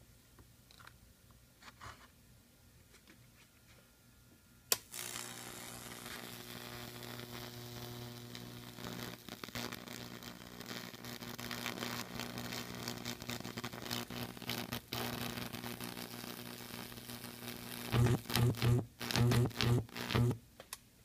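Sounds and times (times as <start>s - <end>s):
transformer mains buzz: 4.8s - 20.4s
burning wood crackling and sizzling: 4.9s - 20.4s.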